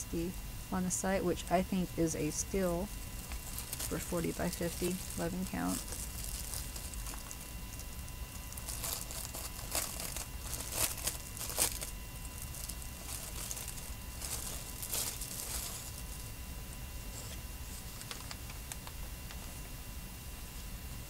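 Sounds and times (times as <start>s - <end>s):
plastic bag crinkling: 2.8s - 16.4s, 17.2s - 19.0s.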